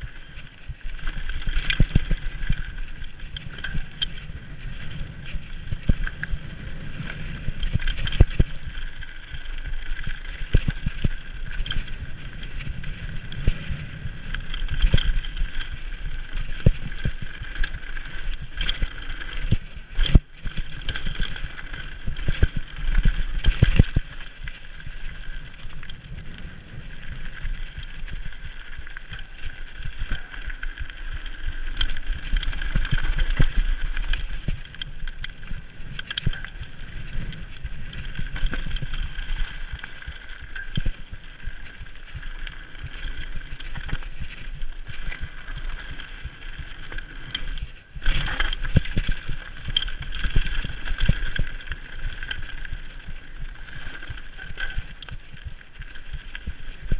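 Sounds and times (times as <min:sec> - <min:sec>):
bike rattling: 0:00.0 - 0:56.9.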